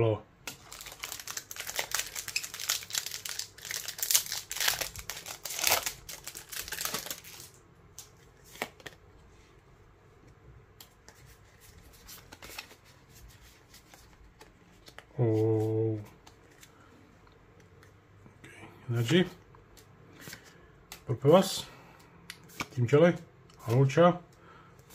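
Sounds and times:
foil wrapper tearing and crinkling: 0.5s - 7.6s
cards clicking and rustling: 0.5s - 9.0s, 10.8s - 16.8s, 22.4s - 22.8s.

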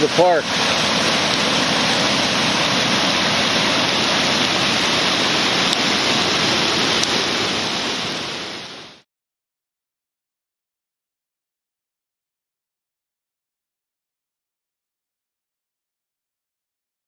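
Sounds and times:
flooded river rushing: 0.0s - 9.0s.

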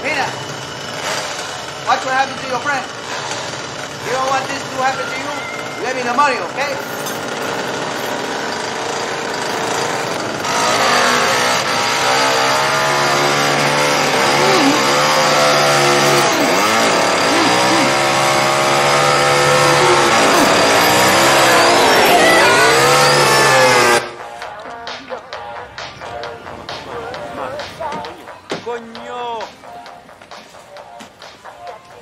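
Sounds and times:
chainsaw running at high revs: 0.0s - 24.1s.

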